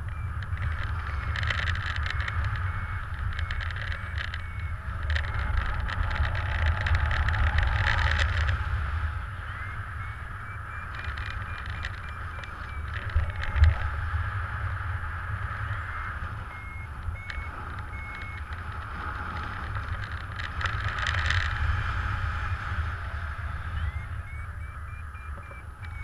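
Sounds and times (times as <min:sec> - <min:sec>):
fast-pulsing electronic beep: 0:00.0 - 0:14.1, 0:15.5 - 0:18.8, 0:23.4 - 0:26.0
low steady rumble: 0:00.0 - 0:26.0
wind rushing over microphone: 0:00.0 - 0:26.0.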